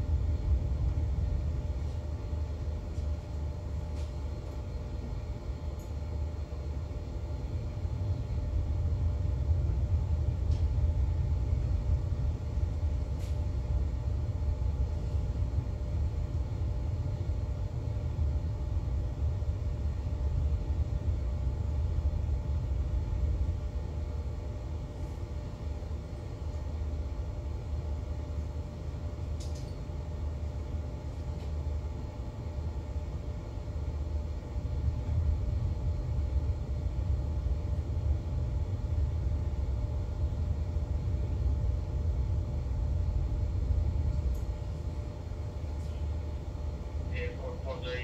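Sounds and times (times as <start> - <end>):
faint steady hum: 0.0 - 48.0
faint click: 29.4 - 29.8
yacht engine rumble: 34.9 - 48.0.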